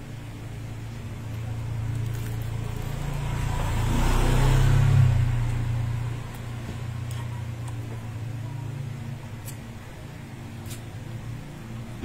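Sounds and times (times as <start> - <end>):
motor vehicle passing: 1.5 - 9.1.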